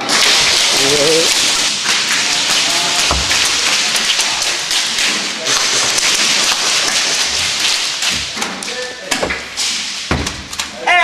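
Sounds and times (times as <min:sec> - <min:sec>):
pellets striking plywood: 0:00.0 - 0:04.2.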